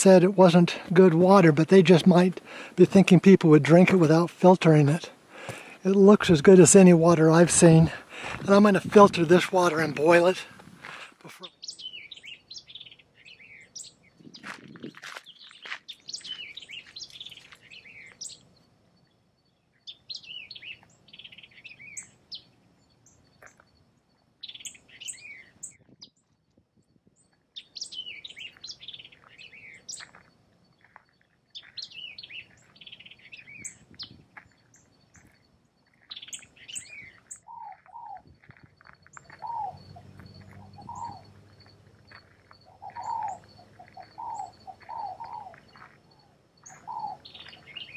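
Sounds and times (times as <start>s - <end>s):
songbird chirping: 0.0s - 47.9s
lower-pitched bird calling: 36.0s - 47.9s.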